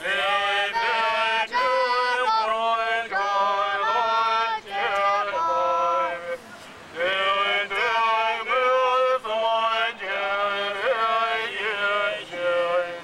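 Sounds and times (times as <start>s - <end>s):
man singing slow melody: 7.0s - 13.0s.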